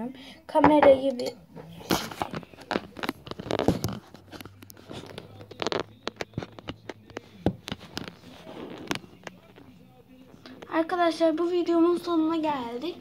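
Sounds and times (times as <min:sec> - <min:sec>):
taps and knocks on tabletop: 0:06.6 - 0:08.0.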